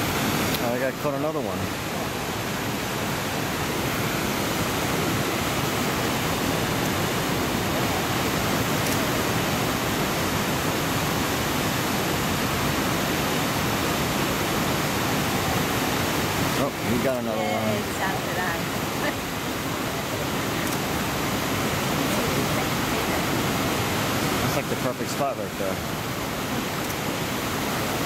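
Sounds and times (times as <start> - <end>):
waterfall and rapids rushing: 0.0 - 28.0.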